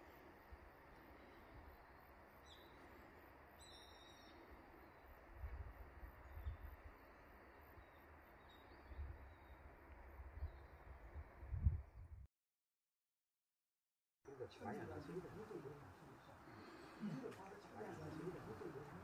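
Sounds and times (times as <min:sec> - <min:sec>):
faint bird calls: 0:00.0 - 0:05.2.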